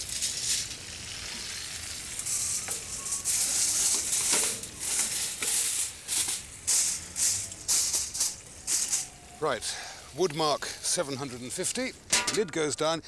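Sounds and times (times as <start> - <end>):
tin foil crinkling: 0.0 - 9.4.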